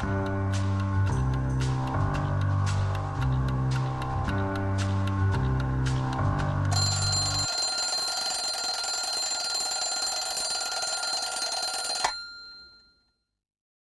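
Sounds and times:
alarm clock click: 6.7 - 12.9
alarm clock bell ringing: 6.7 - 13.1.

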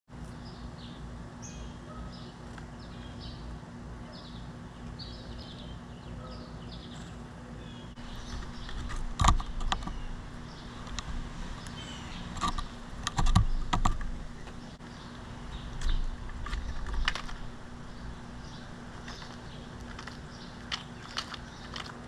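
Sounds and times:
small birds chirping: 0.1 - 22.0
steady low hum: 0.1 - 22.0.

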